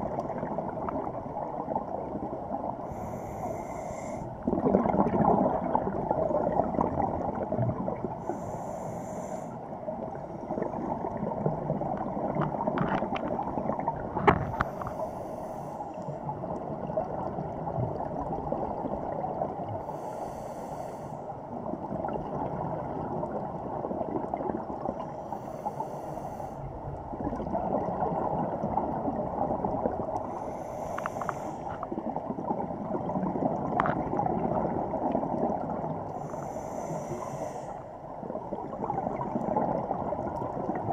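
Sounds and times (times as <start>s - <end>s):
underwater rushing noise: 0.0s - 40.9s
scuba regulator breathing: 2.8s - 4.4s, 8.2s - 10.5s, 14.5s - 16.3s, 19.8s - 21.4s, 25.0s - 26.7s, 30.2s - 31.9s, 36.1s - 38.0s
faint clicks: 30.1s - 31.9s.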